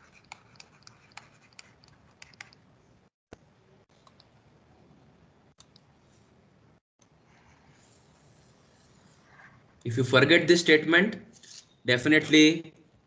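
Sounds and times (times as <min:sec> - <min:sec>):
computer mouse clicks: 0:00.2 - 0:02.6, 0:03.3 - 0:04.3, 0:05.6 - 0:05.9.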